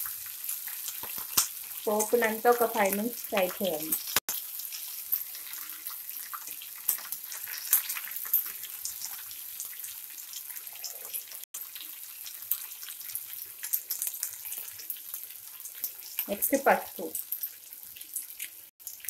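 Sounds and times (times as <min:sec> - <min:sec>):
spices sizzling in oil: 0:00.0 - 0:19.0.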